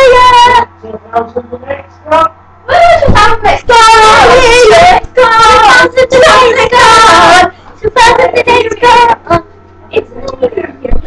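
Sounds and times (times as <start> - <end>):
child singing loudly: 2.7 - 9.4.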